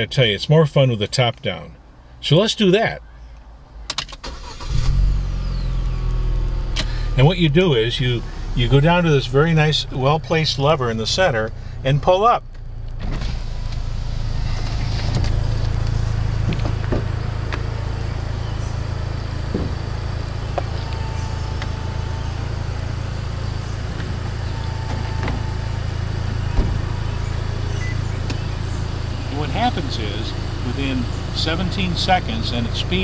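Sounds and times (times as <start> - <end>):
low motor hum: 4.6 - 33.0
clunks and clicks: 22.8 - 28.4.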